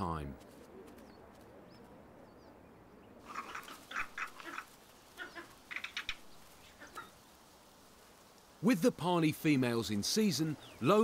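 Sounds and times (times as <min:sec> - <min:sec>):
harsh quacking bird calls: 0:03.2 - 0:07.2.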